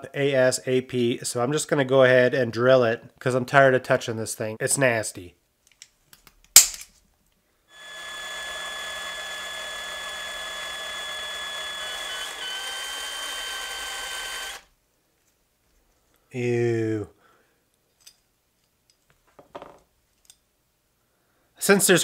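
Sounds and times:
cordless drill whining: 7.7 - 14.7.

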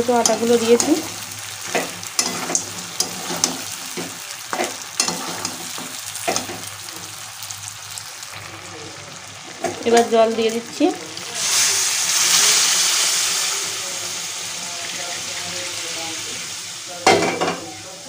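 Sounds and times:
curry sizzling in oil: 0.0 - 18.0
metal spoon scraping a pan: 0.1 - 6.8.

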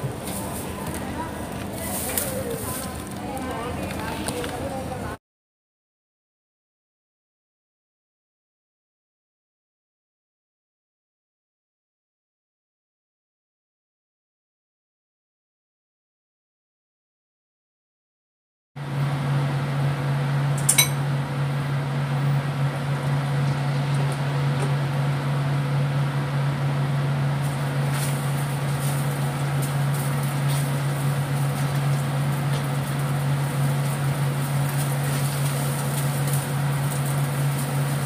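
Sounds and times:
low mechanical hum: 0.0 - 5.2, 18.8 - 38.0
egg frying in a wok: 18.9 - 38.0
sharp clink: 20.6 - 21.0.

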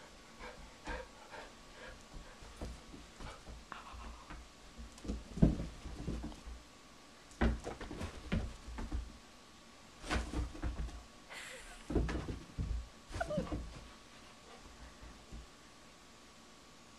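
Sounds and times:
dogs scuffling on carpet: 1.8 - 6.6, 7.4 - 9.1
dog whining: 13.1 - 13.7.

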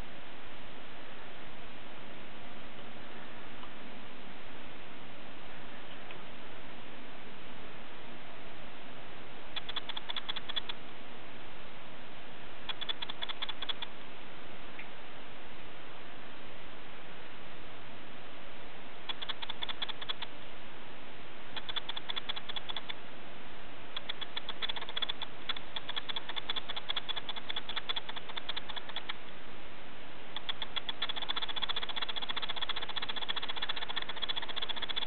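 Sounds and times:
steady hiss: 0.0 - 35.0
insects clicking rapidly: 9.5 - 10.8, 12.6 - 14.0, 19.0 - 20.4, 21.5 - 23.0, 23.9 - 29.3, 30.3 - 35.0.

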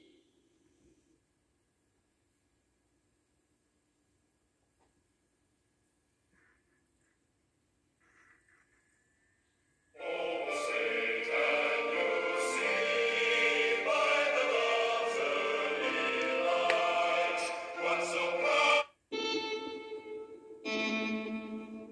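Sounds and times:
choral singing through tv speakers: 10.0 - 21.9.

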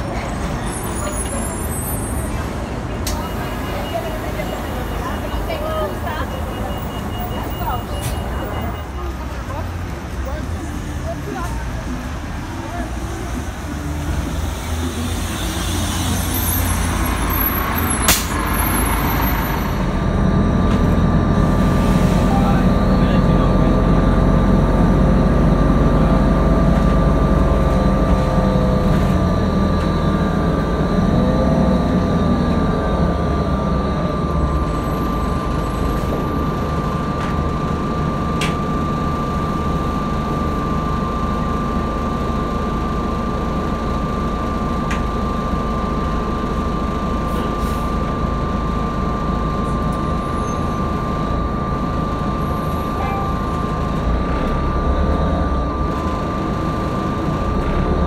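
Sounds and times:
bus diesel engine drone: 0.0 - 58.0
high-pitched transmission whine: 14.5 - 58.0.

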